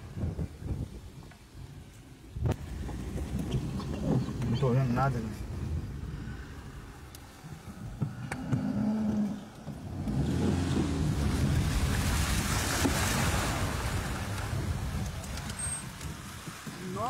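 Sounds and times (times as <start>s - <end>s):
car low rumble: 0.0s - 17.0s
rushing hiss of wind and water: 0.0s - 17.0s.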